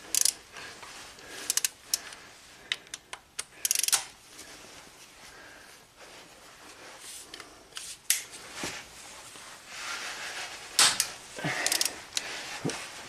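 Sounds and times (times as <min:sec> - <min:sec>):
ratchet clicking on metal bolts: 0:00.1 - 0:00.4, 0:01.5 - 0:01.8, 0:03.6 - 0:04.1, 0:11.6 - 0:11.9.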